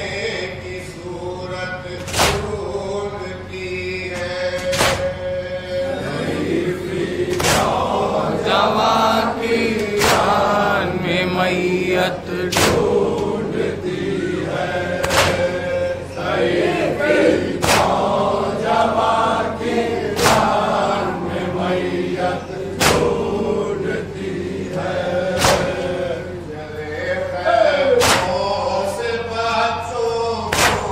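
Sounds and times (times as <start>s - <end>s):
men chanting together: 0.0s - 30.9s
unison chest-beating strikes: 2.0s - 2.7s, 4.6s - 5.3s, 7.2s - 8.5s, 9.8s - 10.6s, 12.5s - 13.5s, 14.9s - 15.8s, 17.4s - 18.3s, 20.0s - 20.8s, 22.7s - 23.5s, 25.2s - 26.1s, 27.9s - 28.7s, 30.5s - 30.9s.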